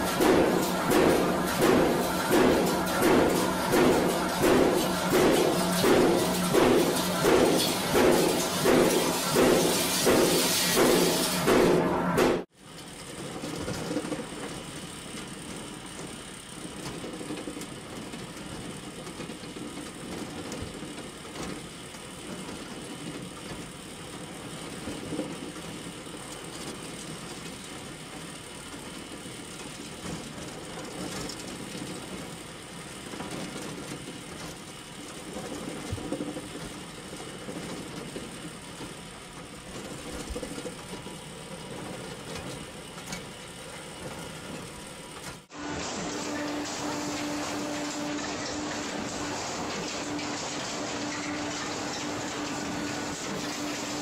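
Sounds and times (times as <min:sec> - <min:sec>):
wire machine running: 0:00.0 - 0:12.5, 0:24.2 - 0:54.0.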